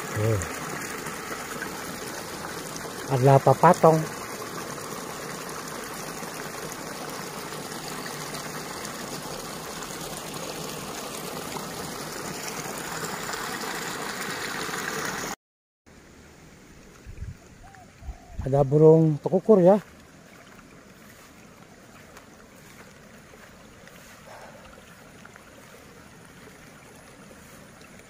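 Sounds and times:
running water rushing: 0.0s - 15.4s, 16.4s - 28.0s.

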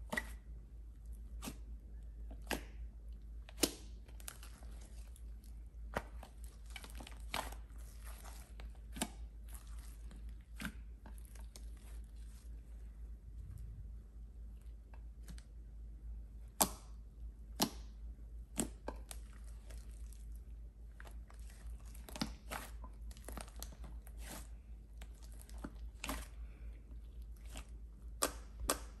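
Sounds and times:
slime squishing and popping: 3.5s - 5.2s.

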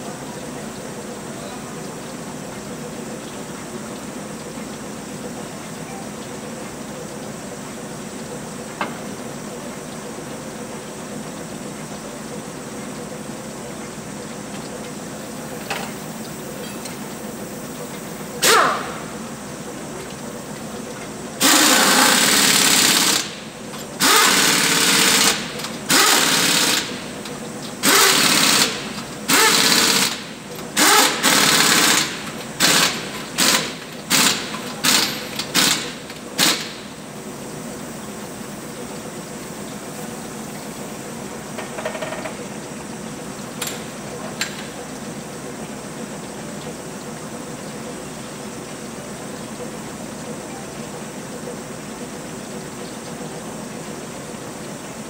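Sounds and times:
pneumatic impact wrench: 18.4s - 19.2s, 21.4s - 27.2s, 27.8s - 37.0s.

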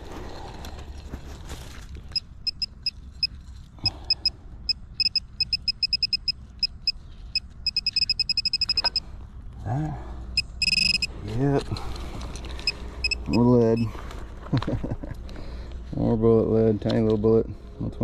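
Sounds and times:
metal detector beeping: 2.1s - 9.1s, 10.4s - 11.2s, 12.6s - 13.9s.

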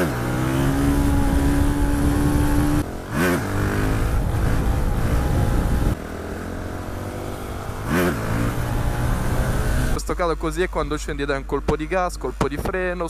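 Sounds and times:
motorcycle engine: 0.0s - 10.2s.

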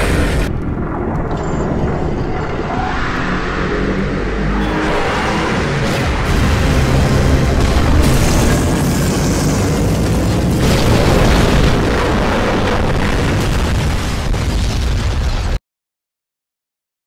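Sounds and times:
explosion booms: 5.6s - 15.6s.

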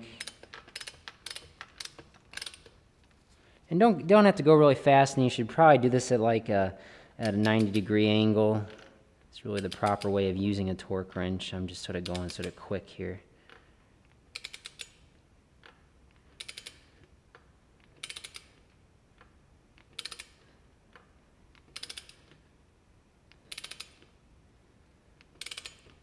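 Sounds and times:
torque wrench ratchet clicking: 0.1s - 2.8s, 14.3s - 15.0s, 16.4s - 17.0s, 17.9s - 18.6s, 19.8s - 20.4s, 21.6s - 22.4s, 23.3s - 24.1s, 25.2s - 26.0s.

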